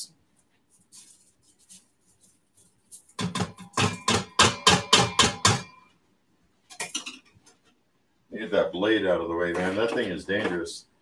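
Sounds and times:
strainer knocking on metal pot: 3.2 - 5.8.

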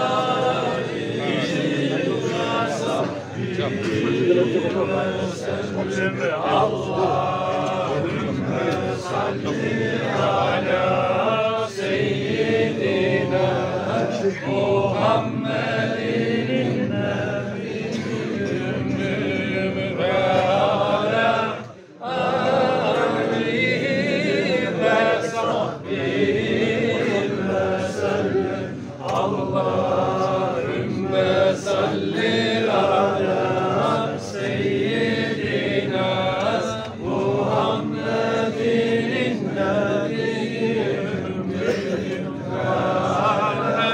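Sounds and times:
men chanting together: 0.0 - 43.9.

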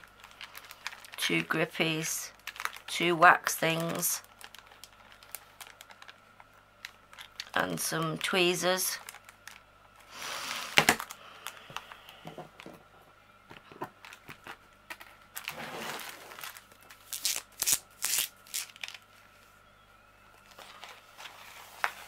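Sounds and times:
plastic bags crinkling: 0.0 - 10.1, 14.0 - 19.1.

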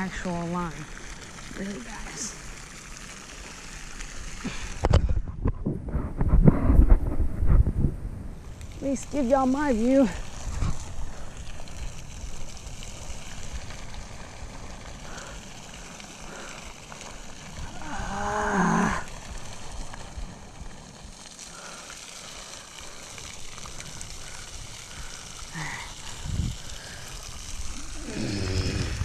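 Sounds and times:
background hiss: 0.0 - 5.2, 6.2 - 29.0
man groaning: 28.0 - 29.0.

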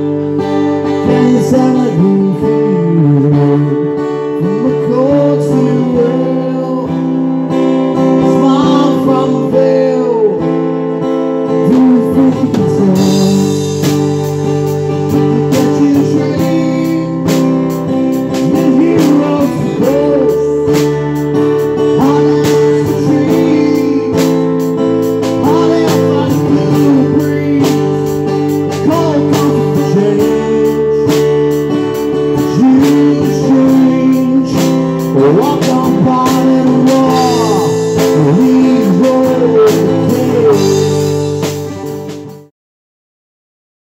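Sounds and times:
lead electric guitar: 0.0 - 42.5
strummed acoustic guitar: 0.0 - 42.5
drum kit and cymbals: 12.5 - 42.5.

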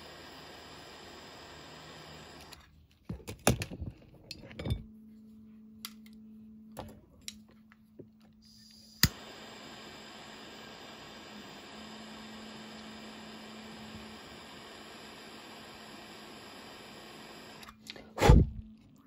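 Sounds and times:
torch flame hissing: 0.0 - 2.6, 8.4 - 18.6
torch igniter click: 8.6 - 11.8.

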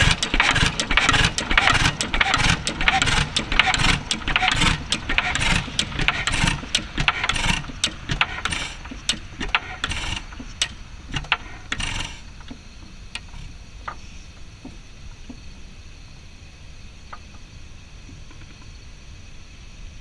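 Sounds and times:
gas engine puffing: 0.0 - 15.4
valve gear clicking: 0.0 - 15.4.

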